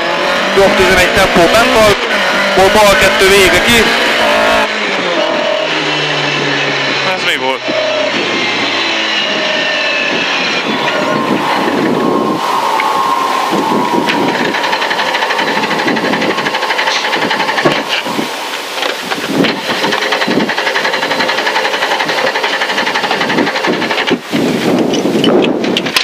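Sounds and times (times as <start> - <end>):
car engine faltering: 0.0 - 24.3
rattling and knocking in car: 14.1 - 18.1, 18.8 - 26.0.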